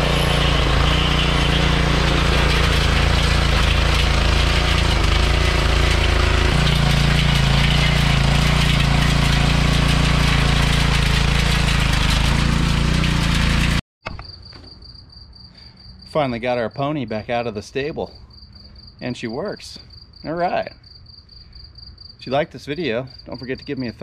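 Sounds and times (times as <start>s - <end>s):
tiller engine running: 0.0s - 13.8s
tines churning soil: 0.0s - 13.8s.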